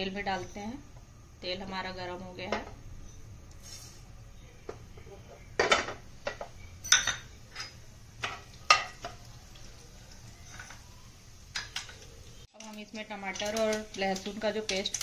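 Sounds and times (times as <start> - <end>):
spoon clinking against pan: 5.6 - 9.2.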